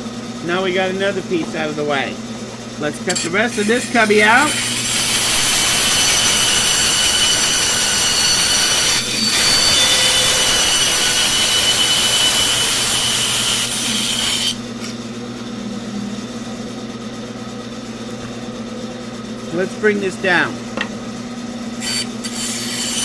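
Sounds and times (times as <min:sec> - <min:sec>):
bandsaw humming freely: 0:00.0 - 0:23.0
bandsaw cutting wood: 0:03.0 - 0:14.7, 0:21.8 - 0:23.0.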